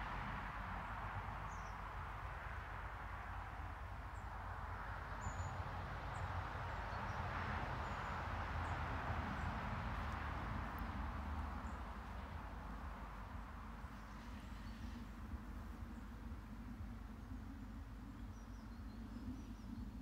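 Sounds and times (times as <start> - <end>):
low rumble: 7.8 - 20.0.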